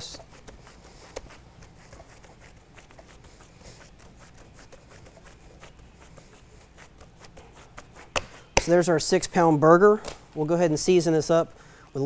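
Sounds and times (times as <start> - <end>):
hands patting raw meat: 0.2 - 4.1, 4.7 - 8.8.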